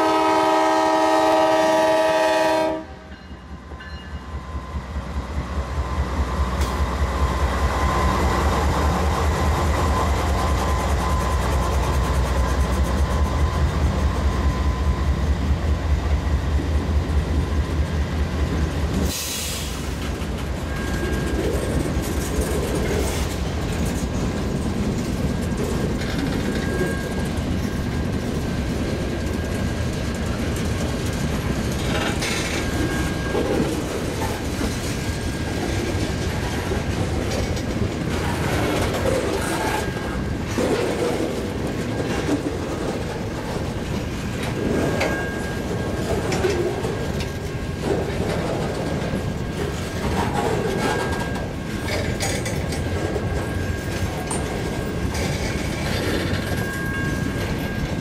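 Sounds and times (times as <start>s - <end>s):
diesel locomotive engine throb: 0.0s - 50.8s
train wheels clacking over rail joints: 18.9s - 58.0s.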